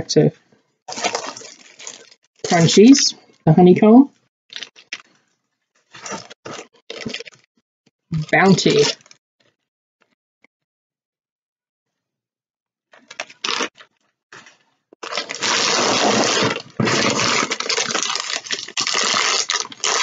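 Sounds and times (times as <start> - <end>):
plastic packaging crinkling: 0.9 - 2.8, 4.5 - 7.5, 13.0 - 20.0.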